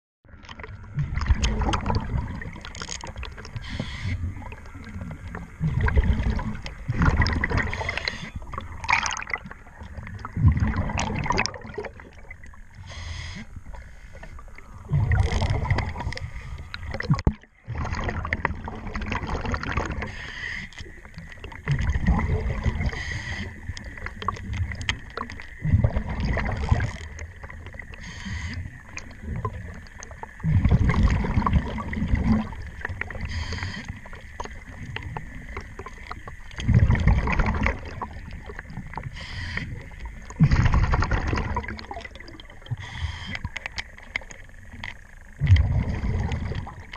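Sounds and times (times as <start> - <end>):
exhaled bubbles rumbling: 0.2 - 46.9
diver breathing through regulator: 12.8 - 16.8, 20.0 - 20.8, 22.8 - 23.6, 28.0 - 28.7, 33.2 - 34.0, 39.1 - 39.8, 42.7 - 43.5.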